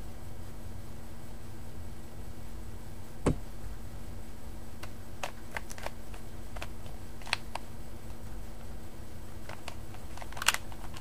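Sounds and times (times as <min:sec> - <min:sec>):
low steady hum: 0:00.0 - 0:11.0
puzzle cube clicking: 0:09.5 - 0:11.0.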